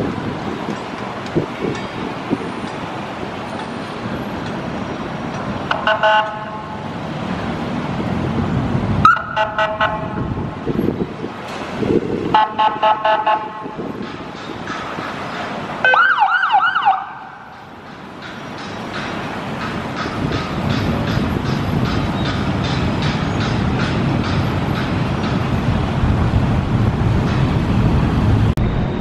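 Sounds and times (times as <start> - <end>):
city road traffic: 0.0 - 29.0
car horn pulsing: 5.7 - 6.8, 9.1 - 10.3, 12.3 - 13.8.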